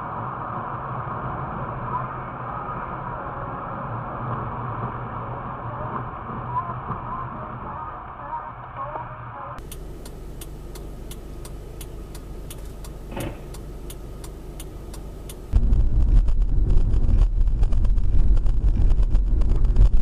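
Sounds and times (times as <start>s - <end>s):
road and wind rumble: 0.0s - 20.0s
car cabin hum: 0.1s - 20.0s
regular ticking: 9.6s - 15.6s.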